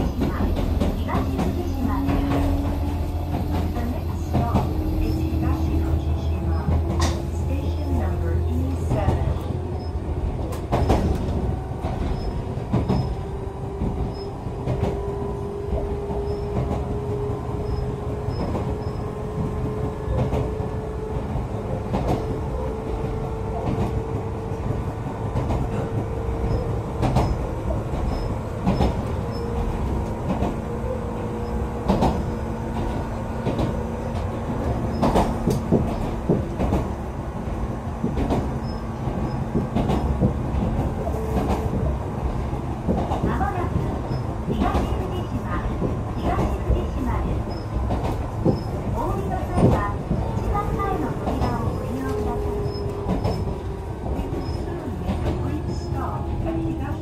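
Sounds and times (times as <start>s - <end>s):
train rumble: 0.0s - 57.0s
wheels knocking on rail joints: 38.0s - 56.9s.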